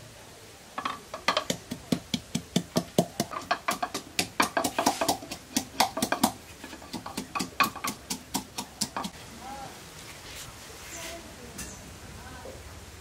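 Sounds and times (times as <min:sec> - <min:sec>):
wooden pestle pounding in mortar: 0:01.1 - 0:09.2.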